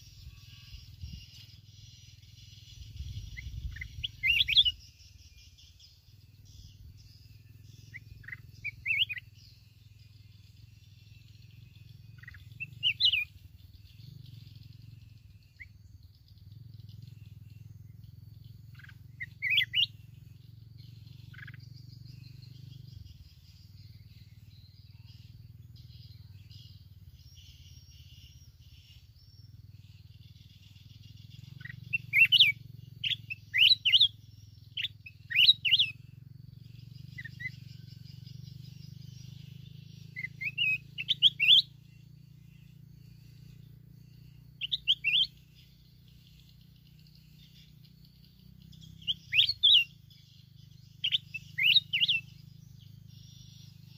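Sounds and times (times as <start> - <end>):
bird singing whistled phrases: 0.0 - 4.9, 7.1 - 9.4, 10.6 - 13.4, 18.8 - 20.1, 31.2 - 36.0, 37.0 - 45.7, 48.7 - 53.9.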